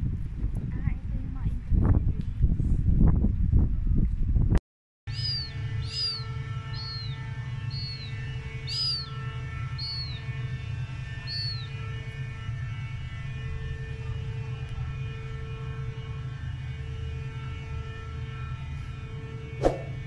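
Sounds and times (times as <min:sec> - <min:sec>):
bird chirping: 0:05.1 - 0:09.2, 0:09.8 - 0:10.3, 0:11.3 - 0:11.7
faint high whine: 0:05.1 - 0:20.0
low machinery hum: 0:05.1 - 0:20.0.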